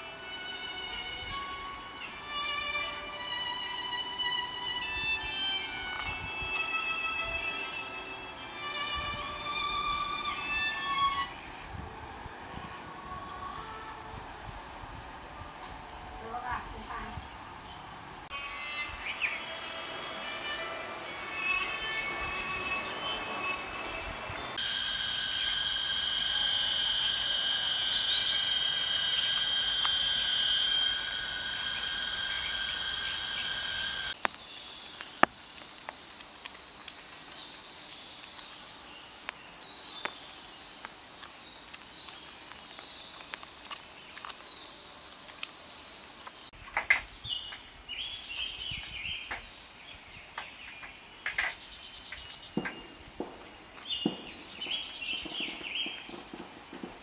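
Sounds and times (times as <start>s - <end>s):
insects shrilling: 24.6s - 49.8s, 50.4s - 57.0s.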